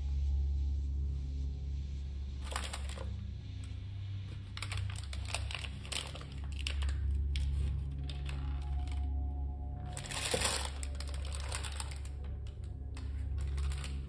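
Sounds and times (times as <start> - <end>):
steady low hum: 0.0 - 14.0
plastic packaging crinkling: 2.4 - 3.2, 4.3 - 14.0.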